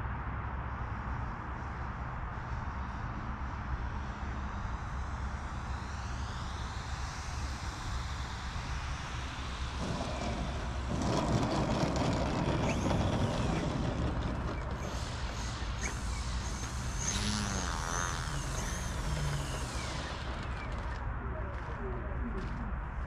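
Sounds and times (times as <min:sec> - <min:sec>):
model airplane propeller and motor: 0:04.8 - 0:22.6.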